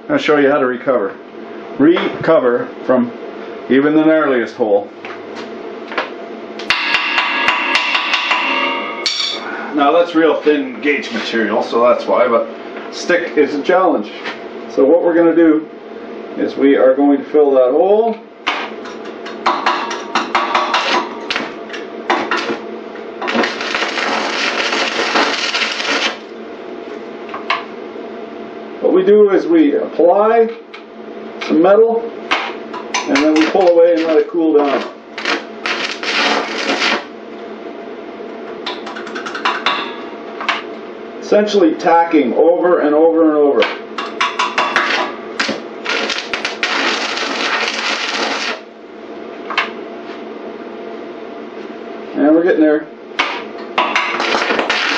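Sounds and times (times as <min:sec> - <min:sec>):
steady hum: 0:00.0 - 0:54.9
welding arc crackling and hissing: 0:20.4 - 0:26.4, 0:33.1 - 0:37.2, 0:44.8 - 0:48.8, 0:54.0 - 0:54.9.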